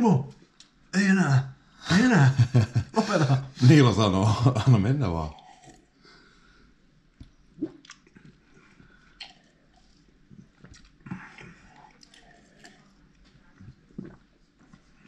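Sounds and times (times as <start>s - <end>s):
man chewing and swallowing: 5.3s - 5.9s, 7.1s - 15.0s
sip of water: 7.6s - 12.8s.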